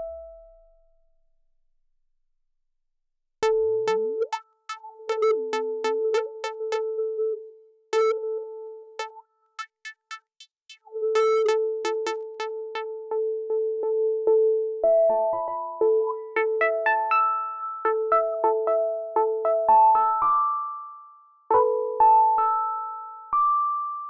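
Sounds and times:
synthesizer tone with clicky attacks: 3.4 - 6.9, 9.0 - 12.9.

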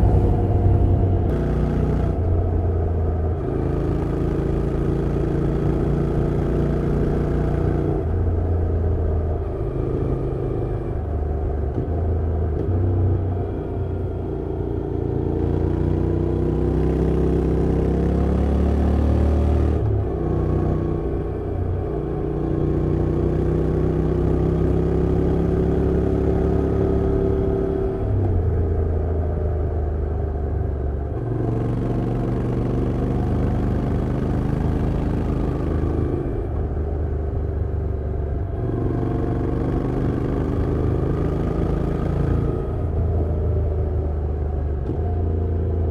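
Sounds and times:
motorcycle engine revving: 0.0 - 8.5, 38.3 - 45.9.

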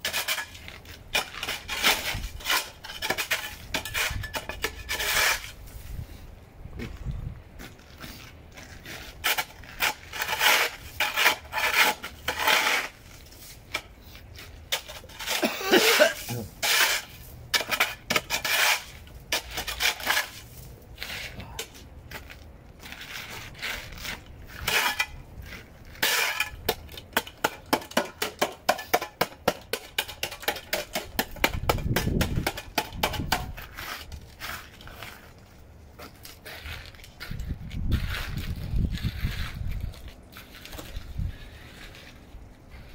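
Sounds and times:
shovel scraping ice: 0.0 - 6.0, 8.0 - 21.7, 22.8 - 29.0, 32.2 - 35.3.

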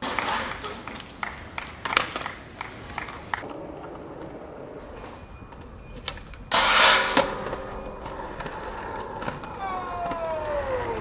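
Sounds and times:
skateboard rolling: 0.0 - 11.0
skateboard grinding metal handrail: 4.7 - 11.0.

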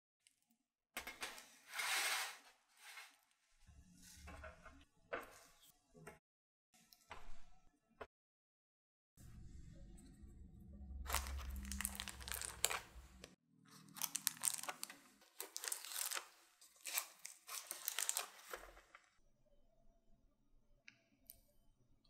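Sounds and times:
foil crinkling: 11.1 - 13.2, 13.8 - 19.1
flaky crust crackling: 11.1 - 19.1.

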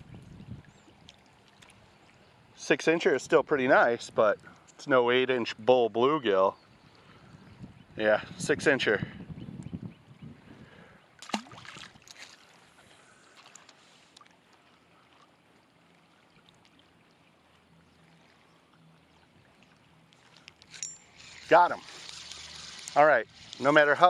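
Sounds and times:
water lapping at the bank: 0.0 - 24.0
fish splashing into water: 11.2 - 12.6.

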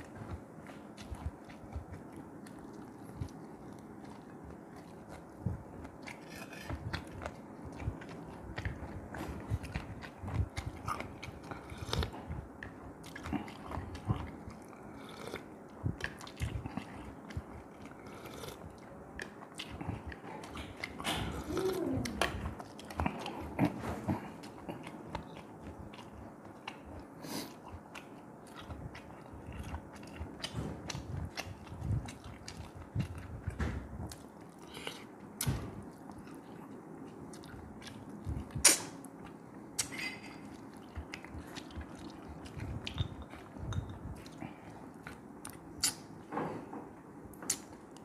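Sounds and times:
person chewing with wet clicks: 0.0 - 46.3, 47.3 - 48.0.

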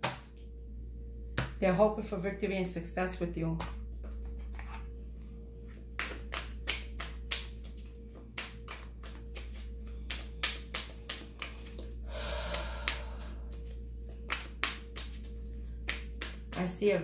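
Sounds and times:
steady low hum: 0.0 - 17.0
cards snapping and tapping: 6.0 - 11.9, 14.2 - 16.6.

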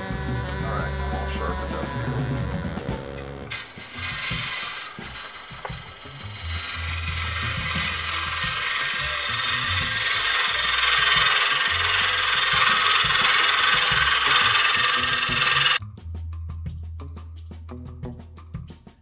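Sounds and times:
lathe motor hum: 3.2 - 15.8
loud even hiss: 3.4 - 15.8.

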